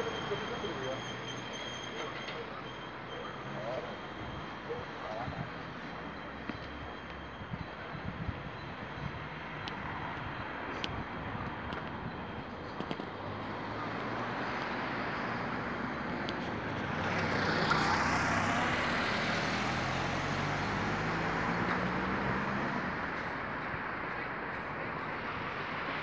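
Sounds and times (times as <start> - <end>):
steady road noise: 0.0 - 26.0
car passing close by: 16.8 - 23.2.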